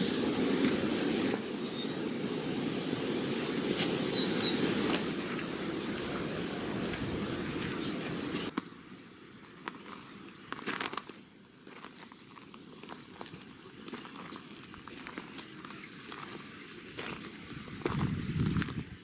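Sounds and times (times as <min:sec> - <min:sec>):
footsteps crunching on gravel: 0:09.6 - 0:18.8.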